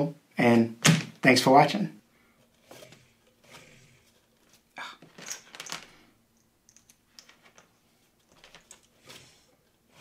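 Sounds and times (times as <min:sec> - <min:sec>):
wire leads clicking and rustling: 0:02.4 - 0:10.0.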